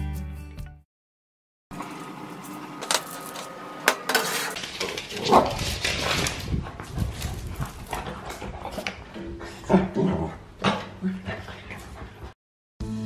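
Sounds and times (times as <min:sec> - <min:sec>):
utensil scraping frying pan: 0:02.8 - 0:06.0.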